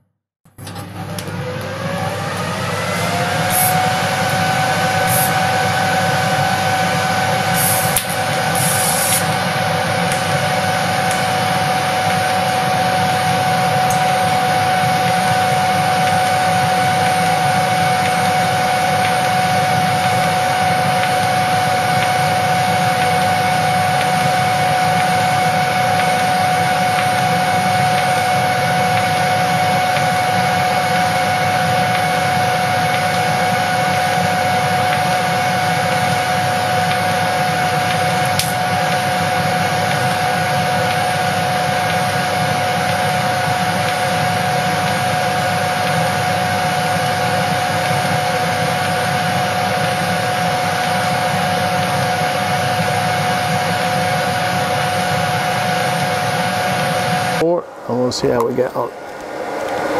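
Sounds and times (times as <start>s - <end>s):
welder whining hum: 0.5s - 59.9s
welding crackles: 7.4s - 30.3s.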